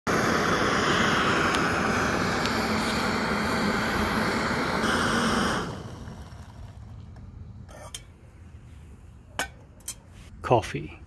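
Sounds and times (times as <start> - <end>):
camping stove burner hissing: 0.1 - 8.1.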